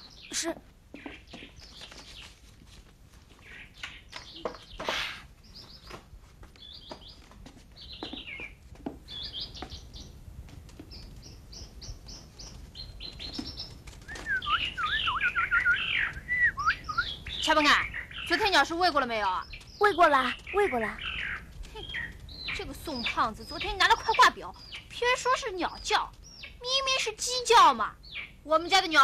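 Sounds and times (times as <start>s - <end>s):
bird warbling song: 0.0s - 2.4s, 3.4s - 6.0s, 7.8s - 10.2s, 10.8s - 29.0s
finches chirping: 7.8s - 10.2s, 10.8s - 29.0s.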